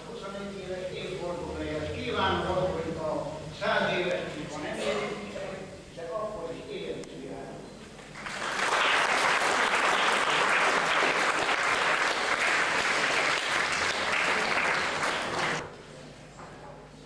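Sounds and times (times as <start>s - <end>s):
audience applauding: 8.1s - 15.7s.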